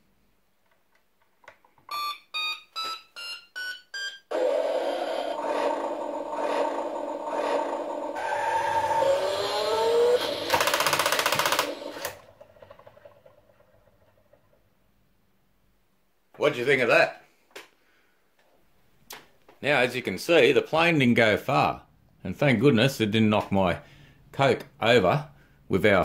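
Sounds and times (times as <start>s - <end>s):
loud fast buzz: 4.3s - 12.1s
electronic rocket engine effect: 4.3s - 13.7s.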